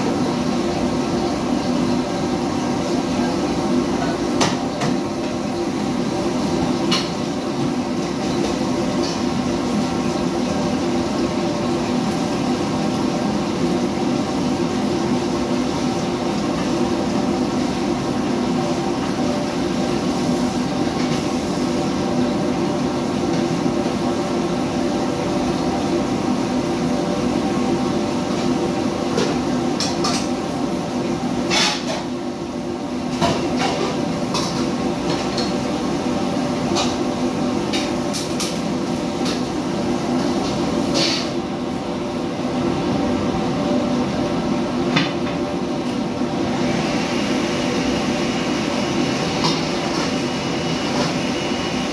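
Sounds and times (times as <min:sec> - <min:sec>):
extractor hood and stove drone: 0:00.0 - 0:51.9
pans and utensils clattering: 0:31.5 - 0:32.1, 0:40.9 - 0:41.4.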